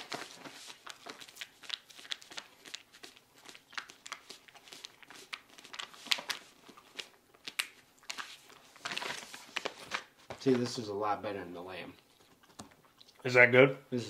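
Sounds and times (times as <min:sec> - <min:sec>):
plastic pouch crinkling: 0:00.0 - 0:10.8.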